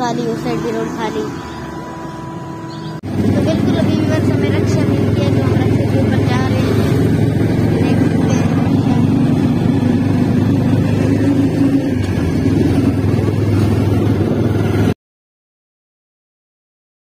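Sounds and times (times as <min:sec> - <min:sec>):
rickshaw engine running: 0:00.0 - 0:15.0.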